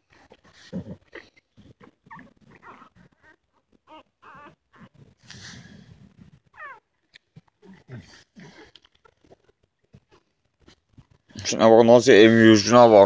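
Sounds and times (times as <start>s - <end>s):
puppies squeaking and whimpering: 1.6s - 5.8s, 6.5s - 6.9s, 8.4s - 10.8s.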